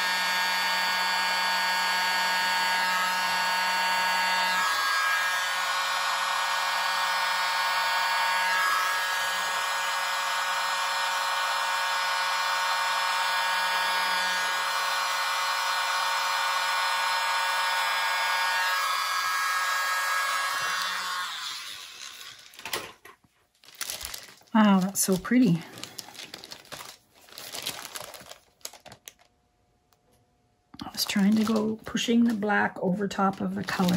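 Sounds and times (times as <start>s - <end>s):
mini blower motor whine: 0.0s - 22.6s.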